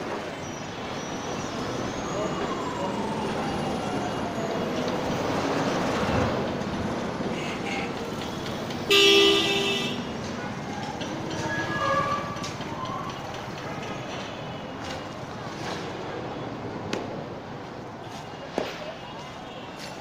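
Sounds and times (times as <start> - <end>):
passing vehicles: 0.0 - 20.0
vehicle horn blast: 8.9 - 10.1.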